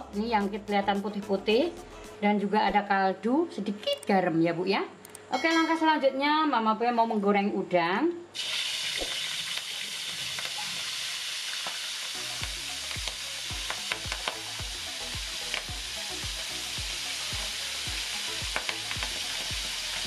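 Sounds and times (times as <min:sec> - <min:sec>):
shrimp sizzling in hot oil: 0:08.4 - 0:20.0
sharp pops and knocks: 0:12.4 - 0:14.4.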